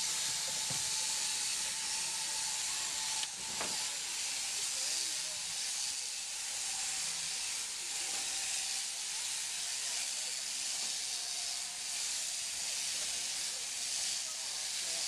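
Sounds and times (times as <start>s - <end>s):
electric shears whirring: 0.0s - 15.0s.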